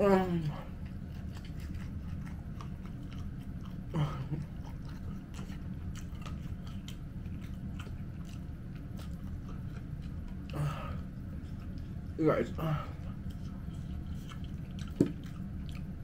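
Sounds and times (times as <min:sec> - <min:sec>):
crunchy chewing: 0:00.4 - 0:16.0
person humming: 0:03.9 - 0:04.4.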